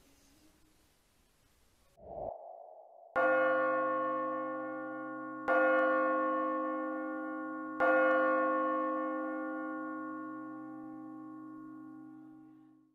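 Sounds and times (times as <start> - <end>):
church bell tolling: 3.2 - 12.9.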